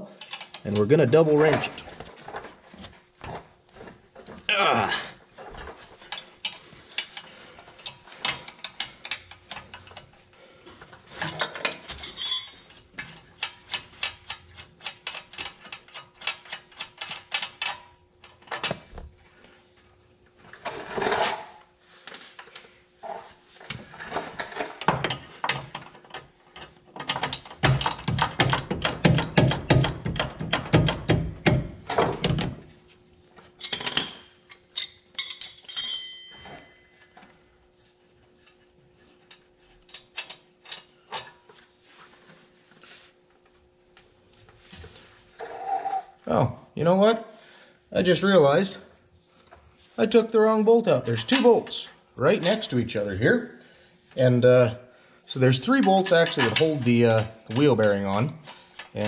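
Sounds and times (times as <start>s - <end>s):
metal tool clinks: 12.0s - 12.7s, 34.8s - 37.2s.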